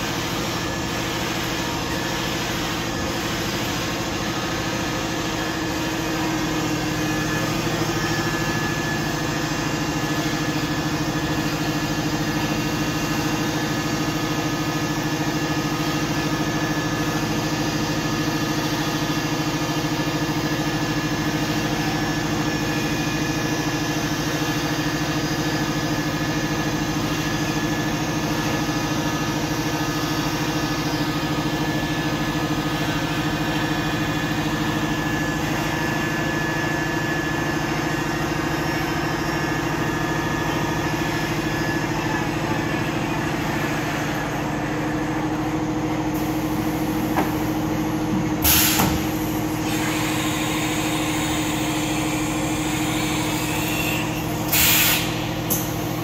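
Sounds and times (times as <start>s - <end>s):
machining center mechanical hum: 0.0s - 56.0s
air hiss: 52.8s - 55.7s.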